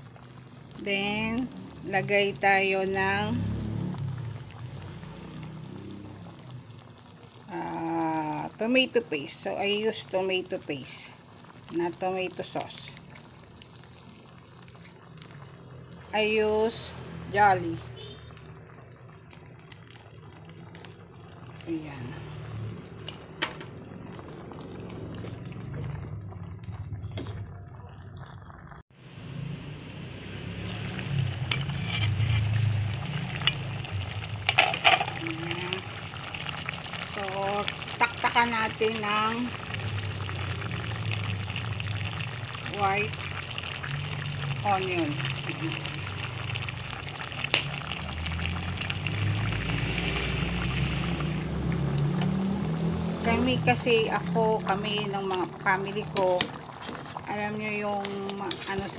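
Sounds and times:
stew bubbling in a pot: 0.0 - 58.9
spoon stirring stew: 31.2 - 35.2, 55.0 - 58.9.

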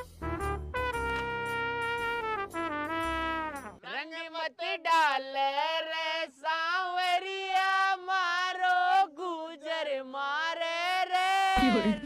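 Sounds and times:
person singing long held notes: 11.4 - 12.0.

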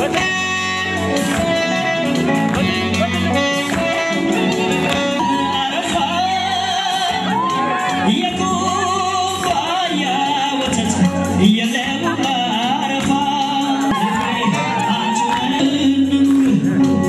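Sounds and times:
solo voice singing over instruments: 5.2 - 17.0.

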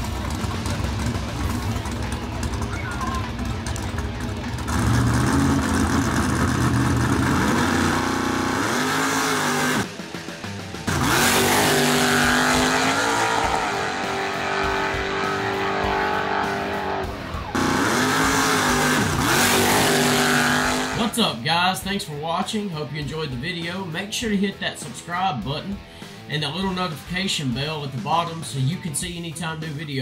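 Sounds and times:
engine at full throttle: 0.0 - 21.2.

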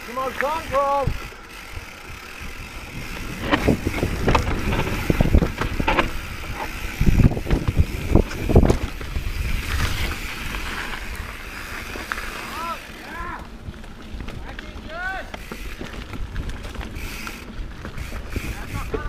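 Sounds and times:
tyre and wind rumble: 0.0 - 19.0
bike wheels knocking on rock: 3.1 - 9.1.

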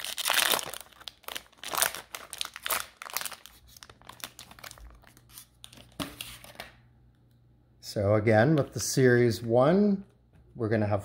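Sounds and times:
wrapper crinkling and tearing: 0.0 - 6.5.

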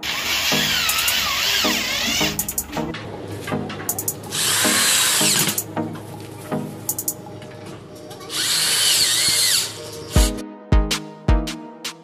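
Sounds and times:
electric drill driving a screw: 0.0 - 2.7, 4.3 - 5.6, 8.3 - 10.3
background music with beat: 0.0 - 7.2, 10.1 - 12.0.

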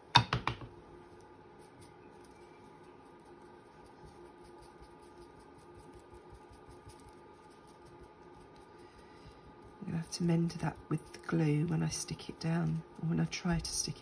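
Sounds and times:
steady low room hum: 0.0 - 14.0
hands tapping and scratching paper: 1.6 - 8.7.

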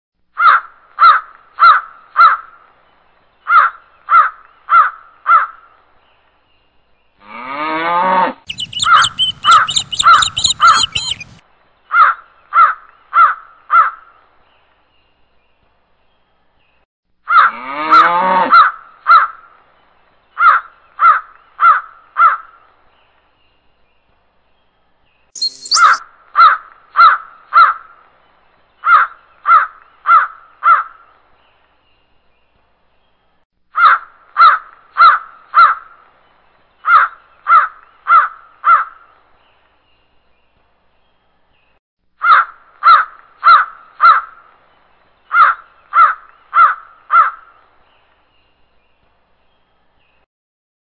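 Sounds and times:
crows cawing: 0.4 - 2.5, 3.5 - 5.6, 8.5 - 14.0, 20.4 - 22.5, 28.8 - 30.9, 33.8 - 35.8, 36.9 - 39.0, 42.2 - 44.4, 45.3 - 47.5
rising bird call: 8.5 - 11.4, 25.4 - 26.0.

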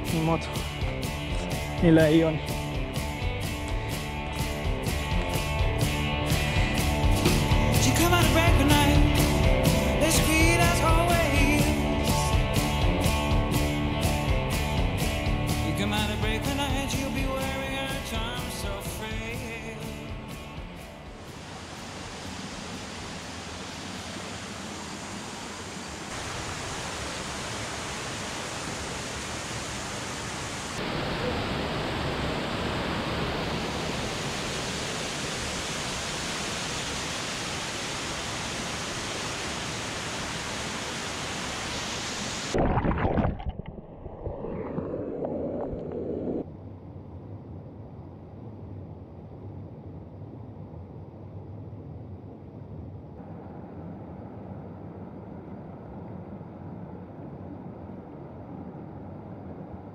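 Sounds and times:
stream rushing over rocks: 21.2 - 43.7.

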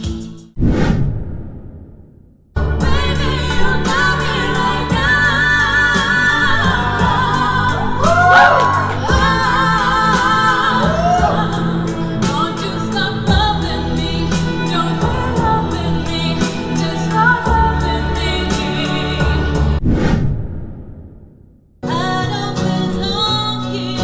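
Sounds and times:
women singing a duet: 2.7 - 19.8, 21.8 - 24.0
backing track with steady beat: 2.8 - 19.8.

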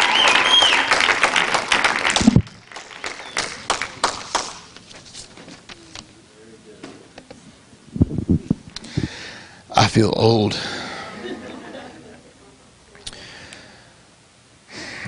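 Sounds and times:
audience applauding: 0.0 - 4.8.

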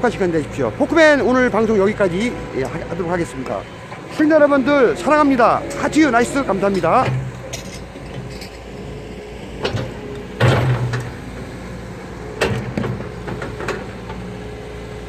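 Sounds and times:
diesel engine running: 0.0 - 15.0
excavator bucket clanks and scrapes: 0.4 - 11.3, 12.4 - 14.2.

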